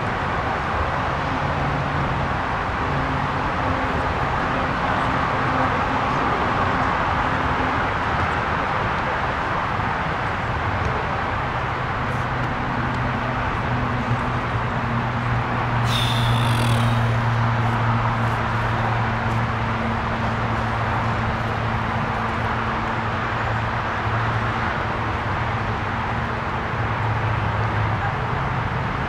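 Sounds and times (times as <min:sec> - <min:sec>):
brief high-pitched sound: 0:15.8 - 0:17.2
low hum: 0:15.8 - 0:17.5.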